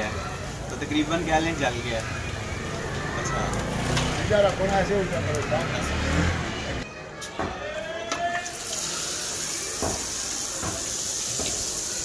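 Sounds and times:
batter sizzling in hot oil: 8.5s - 12.0s.

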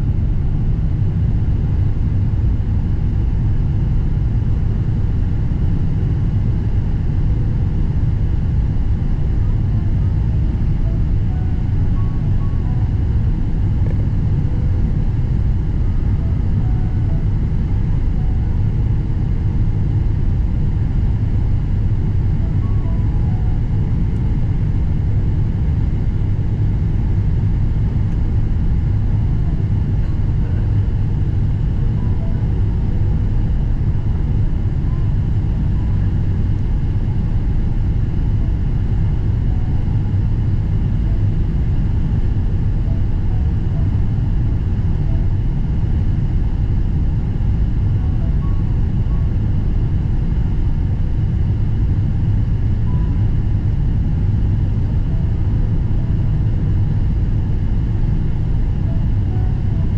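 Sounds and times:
airliner cabin rumble: 0.0s - 59.9s.

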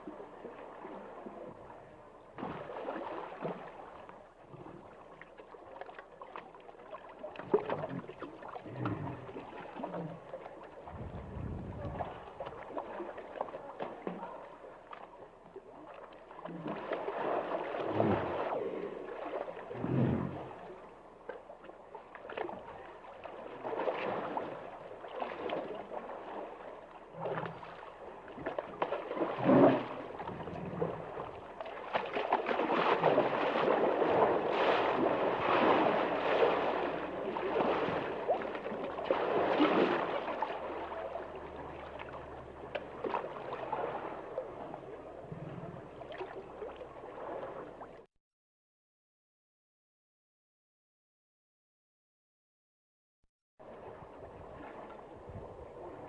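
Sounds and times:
water gurgling and sloshing: 0.0s - 48.1s, 53.6s - 56.0s
hippopotamus grunts: 8.7s - 9.3s, 17.9s - 18.4s.

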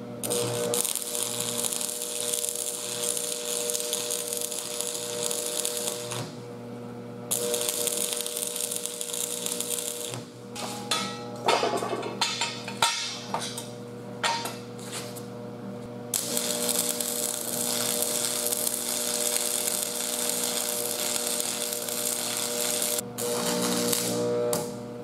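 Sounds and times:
arc welder crackling: 0.0s - 6.6s, 7.3s - 11.5s, 16.1s - 25.0s
metal clanks and taps: 10.6s - 14.6s.

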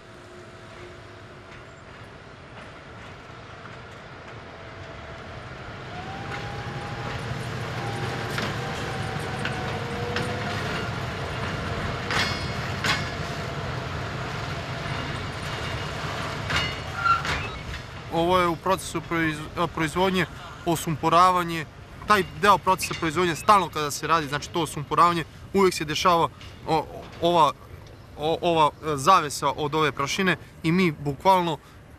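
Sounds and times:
freight wagons rumbling: 0.0s - 31.9s
metallic clanks: 9.4s - 13.4s, 14.9s - 17.9s
faint drawn-out squeal: 16.7s - 17.8s.

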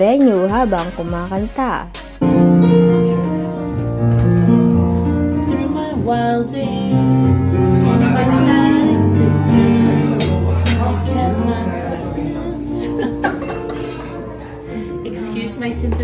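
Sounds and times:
slow pop song: 0.0s - 16.0s
woman singing along: 5.4s - 13.4s.

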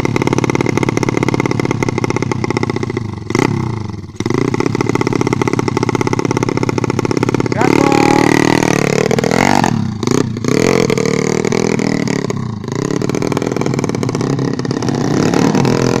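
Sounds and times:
motorcycle engines revving hard: 0.0s - 16.0s.

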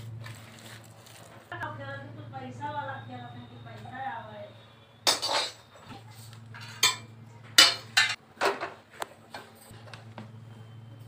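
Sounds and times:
steel utensils clattering: 5.0s - 8.6s.

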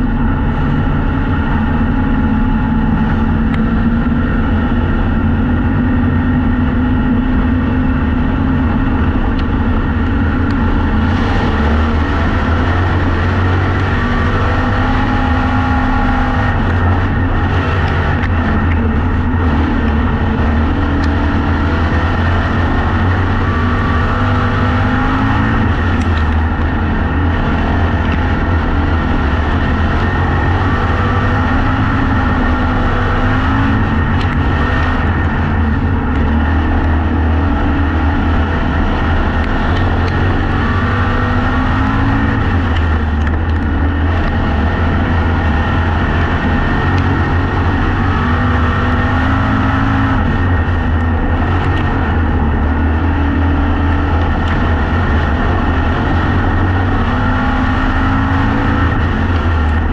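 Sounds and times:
race car engine revving: 0.0s - 59.9s.

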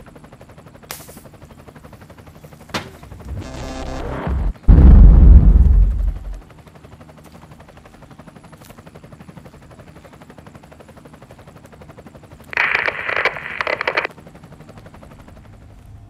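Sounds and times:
explosion boom: 4.7s - 6.4s.

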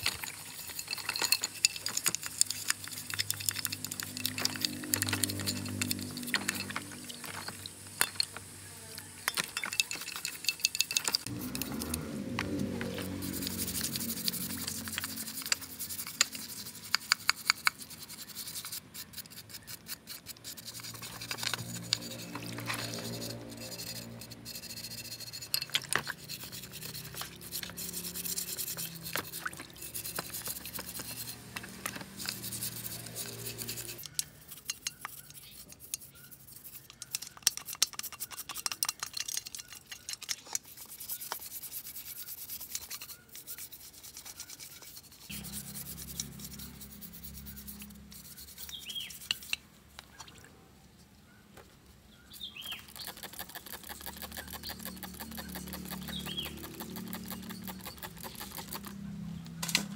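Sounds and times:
abrasive rubbing on metal: 9.7s - 38.6s, 39.6s - 49.6s, 52.6s - 59.1s.

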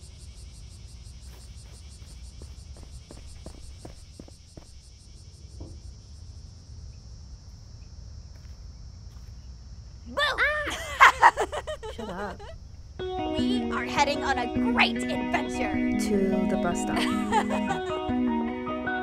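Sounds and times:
crickets chirping: 0.0s - 18.1s.

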